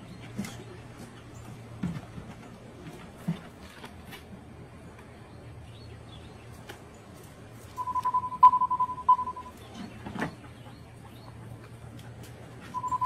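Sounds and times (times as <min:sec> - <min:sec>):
rapid electronic beeping: 0:07.8 - 0:09.6, 0:12.8 - 0:13.0.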